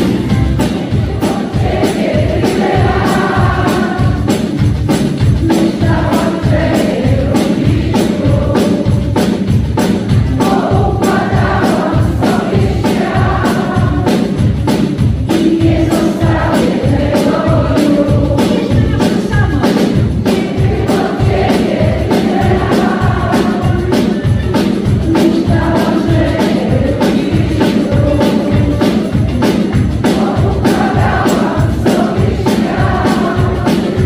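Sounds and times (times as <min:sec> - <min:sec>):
drums beating: 0:00.0 - 0:34.0
live pop band playing: 0:00.0 - 0:34.0
person singing: 0:15.3 - 0:34.0.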